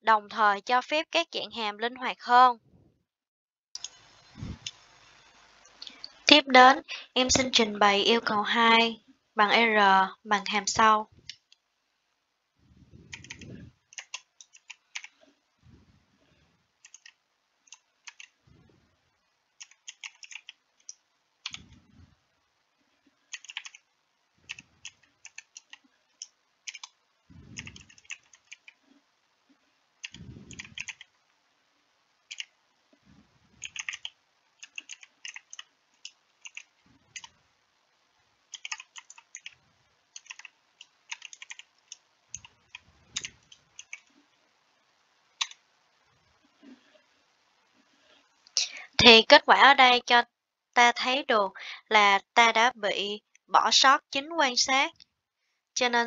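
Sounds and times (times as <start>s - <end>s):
soft low thumps: 12.6s - 13.7s, 21.5s - 22.2s, 27.3s - 28.0s, 30.2s - 30.9s
computer keyboard typing: 13.1s - 15.2s, 16.8s - 18.4s, 19.6s - 21.8s, 23.3s - 23.8s, 24.5s - 28.8s, 30.0s - 31.1s, 32.3s - 32.5s, 33.6s - 37.3s, 38.5s - 44.1s.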